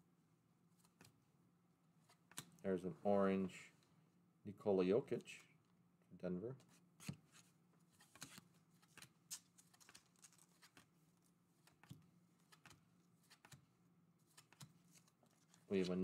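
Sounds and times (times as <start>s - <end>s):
cards flicking and sliding: 6.6s - 10.9s, 11.6s - 13.6s, 14.3s - 16.0s.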